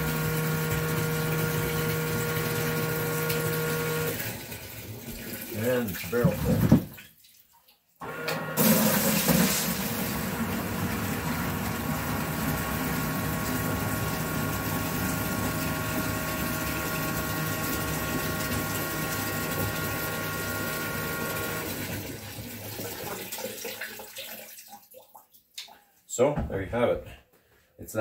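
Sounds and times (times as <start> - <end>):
bilge pump humming: 0.0 - 6.9, 8.0 - 23.3
water gushing into bucket: 0.0 - 7.3, 8.0 - 25.3.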